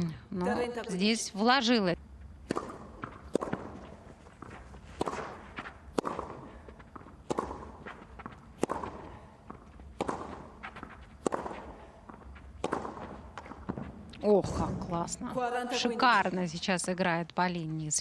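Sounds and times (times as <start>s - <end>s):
racket hitting ball: 2.4s - 14.1s.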